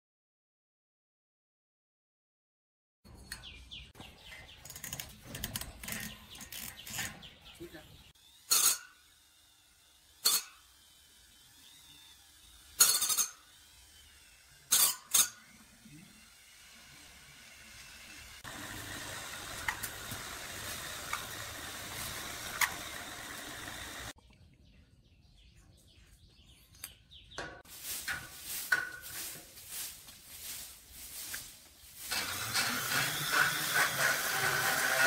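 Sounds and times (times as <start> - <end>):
metal parts clinking on metal: 12.8 - 13.4.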